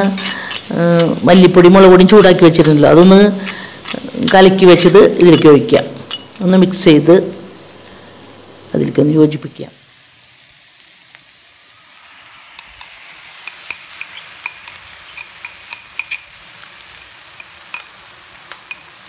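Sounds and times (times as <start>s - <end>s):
spatula scraping pan: 0.0s - 6.4s, 13.4s - 17.9s
soft frying sizzle: 0.0s - 19.0s.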